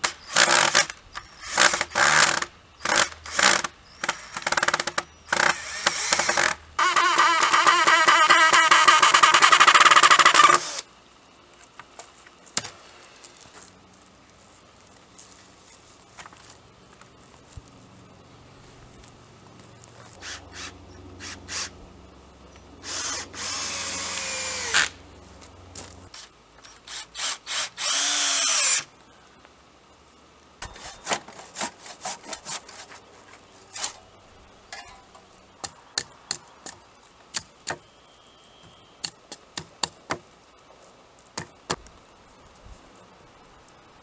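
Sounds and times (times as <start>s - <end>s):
cordless drill driving screws: 0.3s - 10.9s, 22.8s - 25.0s, 26.2s - 28.9s
hand saw cutting wood: 20.2s - 21.7s, 30.6s - 33.0s.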